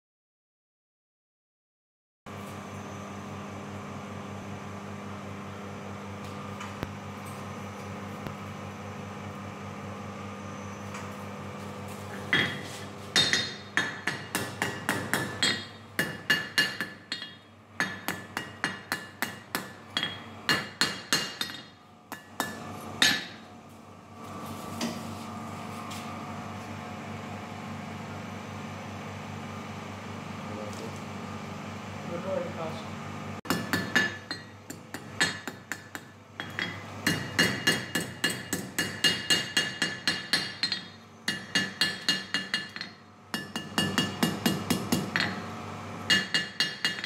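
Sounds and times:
forge blower humming: 2.3s - 47.0s
hammer striking steel: 12.3s - 23.4s, 33.5s - 45.4s, 46.1s - 47.0s.

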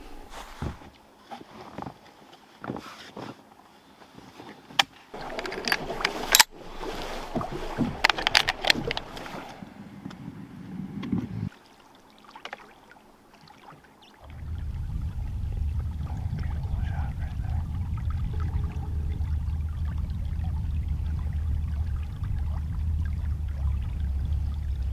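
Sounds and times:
low rushing: 5.2s - 11.5s, 14.2s - 24.9s.

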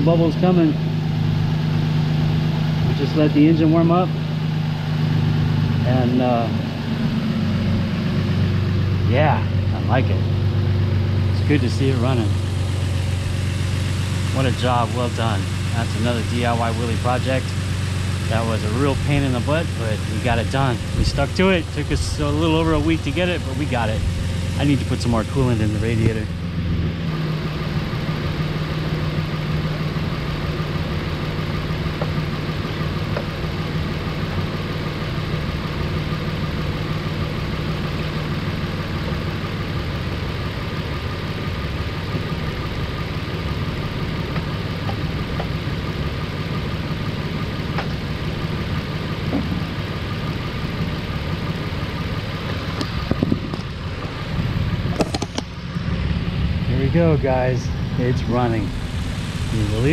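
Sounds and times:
car engine idling: 0.0s - 59.9s.

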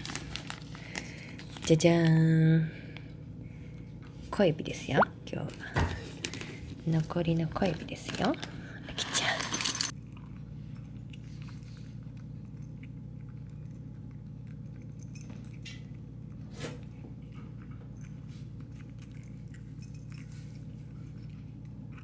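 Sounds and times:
steady low hum: 0.0s - 22.0s
cat chewing food: 9.9s - 22.0s.

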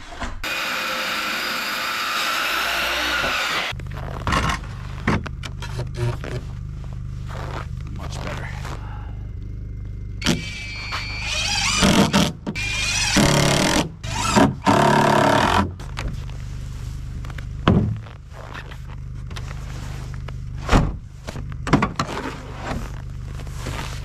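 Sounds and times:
impact driver whining: 0.4s - 3.8s, 10.2s - 15.7s
steady low hum: 3.4s - 24.0s
dull thumps: 17.3s - 19.5s.

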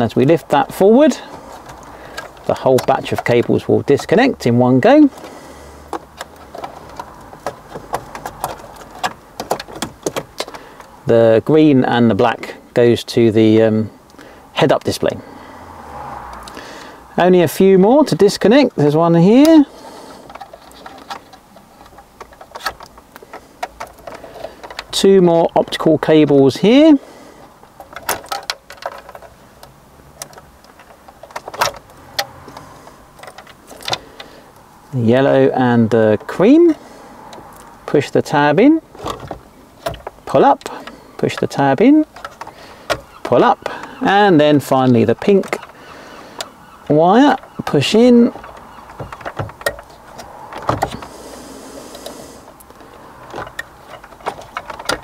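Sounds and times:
cables rattling: 0.0s - 13.8s, 16.4s - 55.0s.

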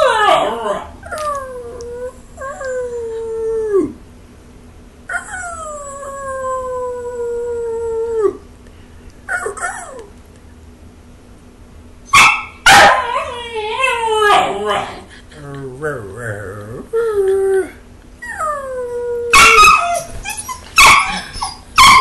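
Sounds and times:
puppy howling: 0.0s - 4.0s, 5.1s - 8.4s, 12.7s - 15.0s, 16.4s - 22.0s.

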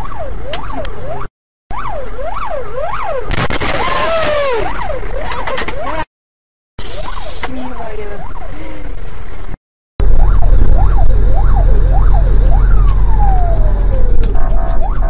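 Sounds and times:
siren wailing: 0.0s - 6.1s, 6.8s - 8.9s, 10.0s - 15.0s
loud low rumble: 10.0s - 14.9s.

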